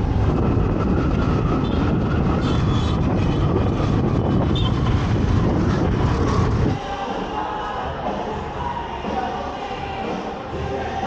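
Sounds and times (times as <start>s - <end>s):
wind rushing over microphone: 0.0s - 6.9s
road and engine rumble: 0.0s - 11.0s.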